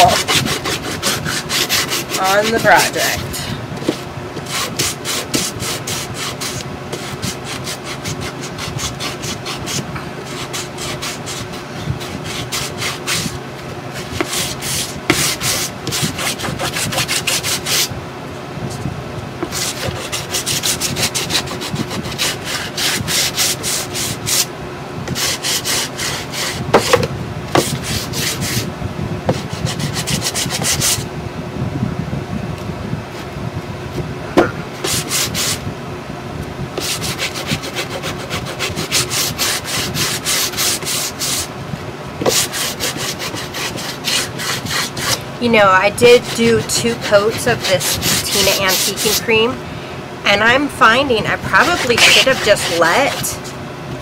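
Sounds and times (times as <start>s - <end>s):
sanding block rasping on wood: 0.0s - 13.4s, 14.0s - 17.9s, 19.4s - 24.5s, 25.1s - 28.7s, 29.3s - 31.0s, 34.8s - 35.6s, 36.8s - 41.5s, 42.2s - 49.3s, 50.8s - 53.5s.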